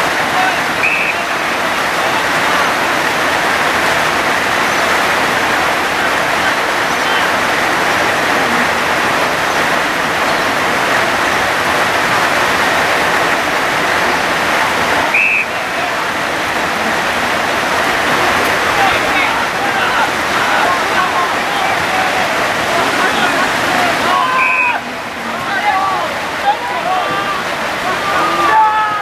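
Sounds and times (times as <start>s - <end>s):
heavy rain pouring: 0.0s - 29.0s
short high whistle blast: 15.1s - 15.6s, 24.4s - 24.8s.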